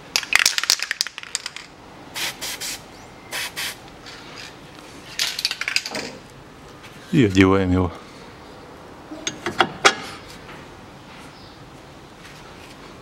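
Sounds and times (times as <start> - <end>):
grease spray hissing: 2.2 - 3.8.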